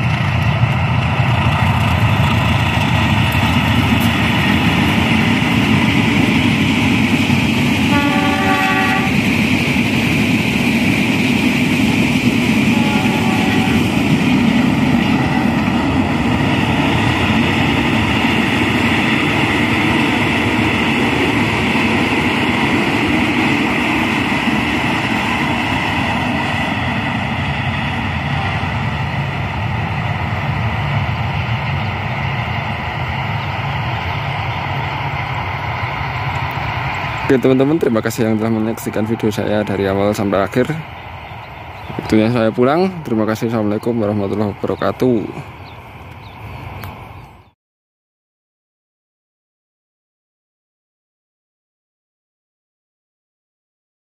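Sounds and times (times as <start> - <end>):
diesel train rumbling: 0.0 - 47.6
distant electric train passing: 0.0 - 47.6
faint train horn: 7.8 - 9.2, 12.6 - 14.0.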